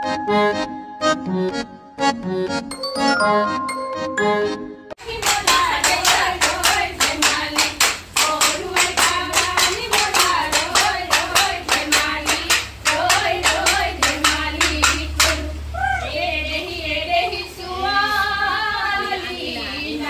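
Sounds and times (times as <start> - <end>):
hands clapping in rhythm: 5.0 - 15.4
women singing together: 5.0 - 20.0.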